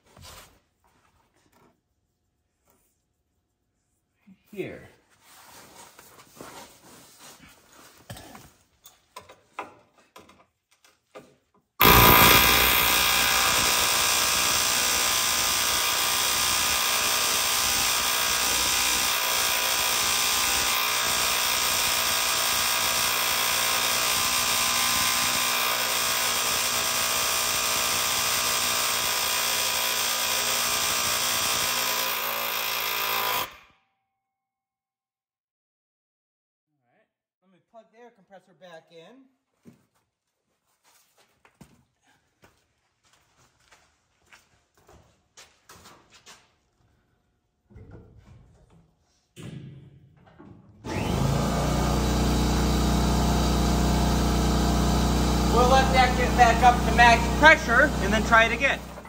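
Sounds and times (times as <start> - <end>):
pneumatic air hammer running: 11.8 - 33.7, 50.8 - 59.0.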